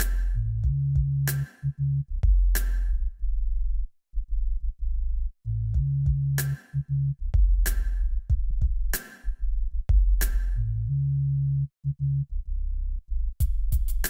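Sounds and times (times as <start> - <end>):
electronic music with drum-machine beat: 0.0 - 3.0, 5.8 - 6.8, 7.4 - 10.8, 13.4 - 14.0.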